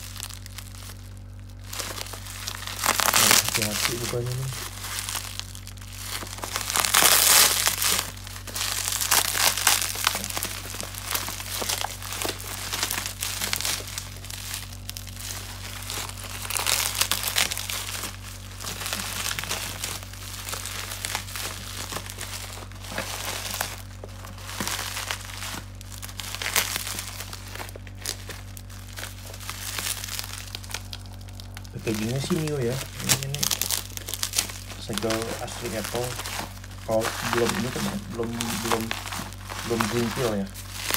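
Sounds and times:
bubble wrap and tape crinkling: 0.0 - 40.9.

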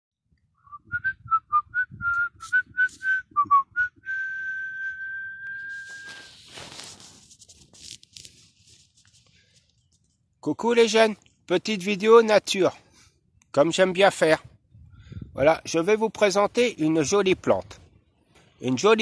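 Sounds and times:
person whistling: 0.6 - 6.4
brief rustle: 5.5 - 10.4.

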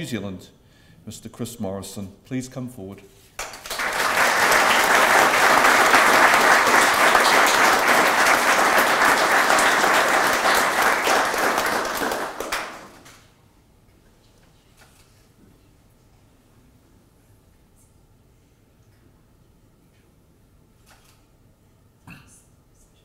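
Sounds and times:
audience applauding: 3.4 - 13.3.

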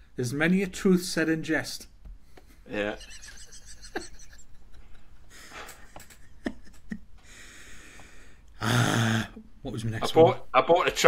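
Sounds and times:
breathing through the nose: 7.2 - 8.4
voiced snort: 8.6 - 9.4.

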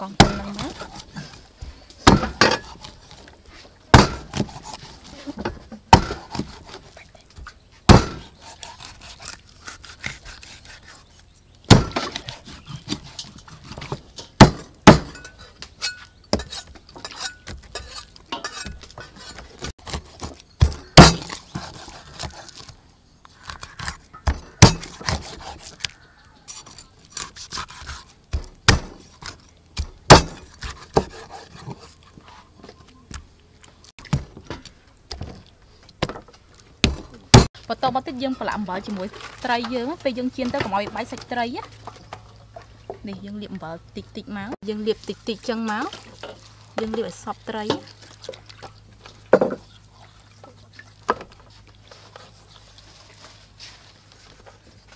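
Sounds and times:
knife chopping on wooden block: 3.9 - 4.7, 5.9 - 6.8, 7.9 - 10.2, 11.7 - 15.2, 29.8 - 31.8.

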